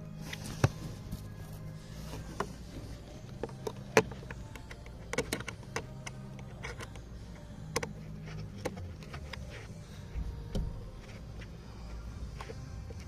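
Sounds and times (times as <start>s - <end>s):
low steady hum: 0.0s - 13.0s
plastic parts clicking: 3.3s - 7.0s.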